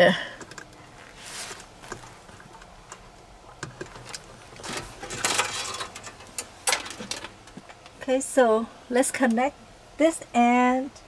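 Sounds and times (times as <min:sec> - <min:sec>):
rustling of floor mat: 0:00.9 - 0:02.4.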